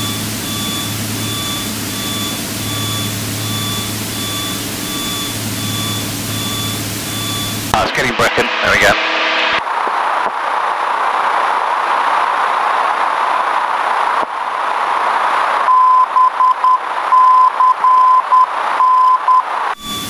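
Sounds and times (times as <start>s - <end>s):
morse code beeping tone: 0.0s - 9.6s, 15.7s - 20.0s
radio static hiss: 0.1s - 20.0s.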